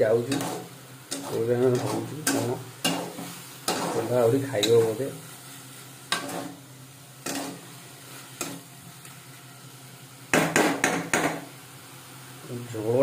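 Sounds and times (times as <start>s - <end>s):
faint sizzle: 0.0s - 13.0s
metal spatula scraping a pan: 0.2s - 6.6s, 7.2s - 8.7s.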